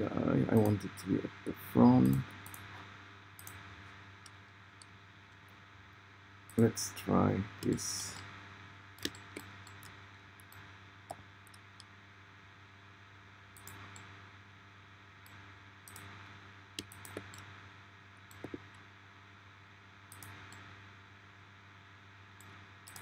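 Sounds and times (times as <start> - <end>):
steady low hum: 0.0 - 23.0
mouse and keyboard clicks: 16.8 - 17.5.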